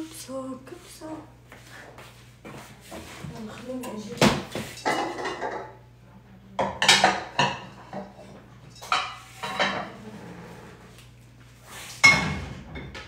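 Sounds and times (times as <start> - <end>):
dishes and cutlery clattering: 4.6 - 5.8, 6.6 - 10.0.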